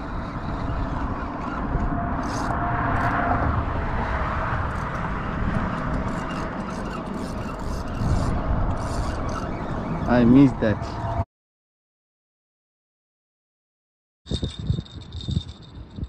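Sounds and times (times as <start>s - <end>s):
road traffic rumble: 0.0s - 11.2s.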